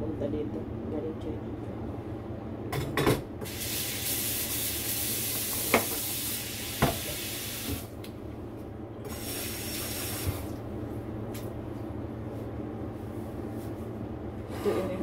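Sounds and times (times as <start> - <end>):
tap water running into a sink: 3.4 - 7.9, 9.1 - 10.6.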